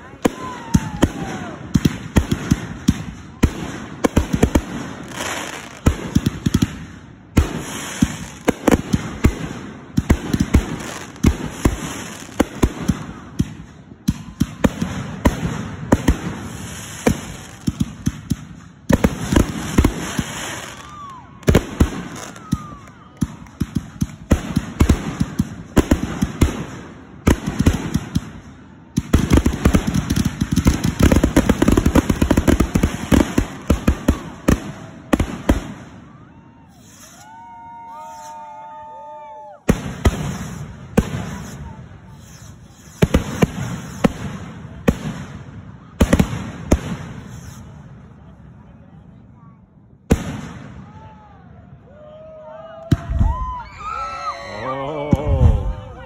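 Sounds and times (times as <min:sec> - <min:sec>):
fireworks crackling: 0:00.0 - 0:48.4
fireworks bursting with sharp bangs: 0:00.0 - 0:51.8, 0:52.8 - 0:53.6
fireworks whistling: 0:07.3 - 0:38.8, 0:39.6 - 0:45.2, 0:45.9 - 0:47.9.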